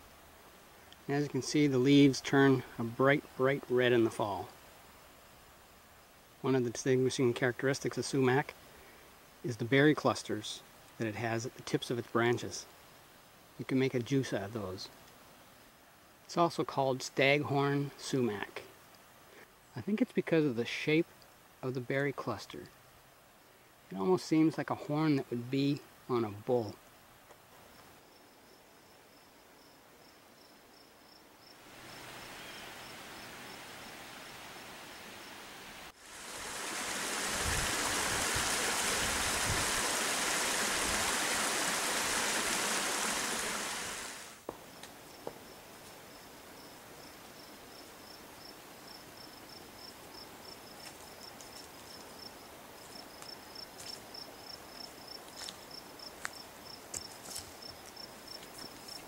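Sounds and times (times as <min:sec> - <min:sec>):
crickets chirping: 0:27.6 - 0:40.7, 0:44.5 - 0:59.0
waterfall splashing: 0:36.0 - 0:44.5.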